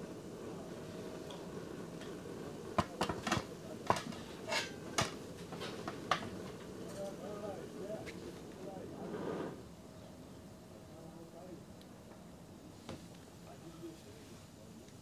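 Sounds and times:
camping stove hissing: 0:00.0 - 0:15.0
cookware clicking and clattering: 0:03.9 - 0:05.1.

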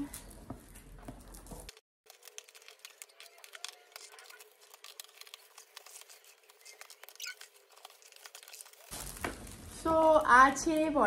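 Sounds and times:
wrapping paper tearing and crinkling: 0:01.7 - 0:10.2.

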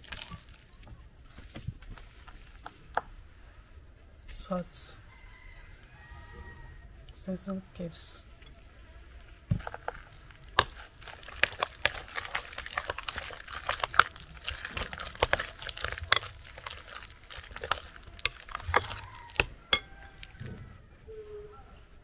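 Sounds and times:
spoon stirring wet mash: 0:00.0 - 0:02.6, 0:08.3 - 0:20.6
spoon scraping glass bowl: 0:10.6 - 0:20.4.

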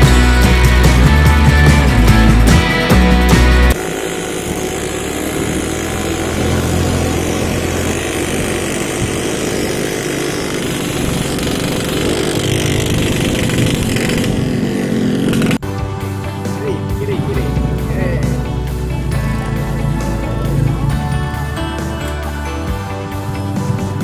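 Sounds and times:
small motorcycle engine running: 0:00.0 - 0:24.0.

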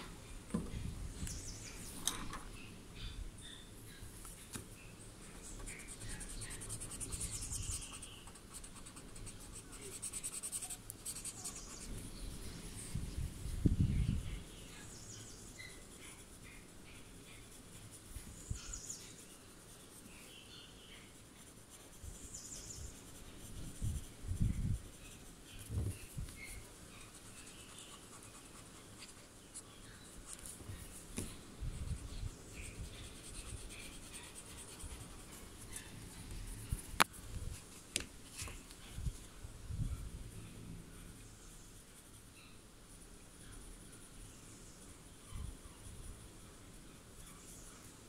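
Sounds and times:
pencil scratching on paper: 0:05.3 - 0:13.0, 0:14.4 - 0:37.8, 0:41.4 - 0:43.0.

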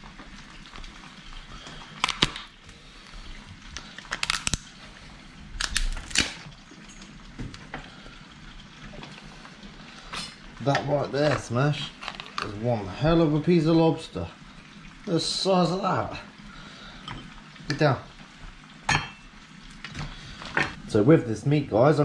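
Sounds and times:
lobster shell cracking: 0:01.8 - 0:02.6, 0:03.8 - 0:04.7, 0:05.6 - 0:06.5, 0:12.0 - 0:12.5.

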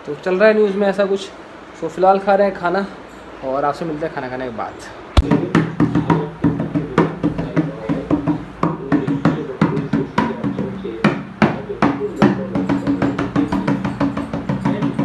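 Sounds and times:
rhythmic drum hits: 0:05.2 - 0:15.0.

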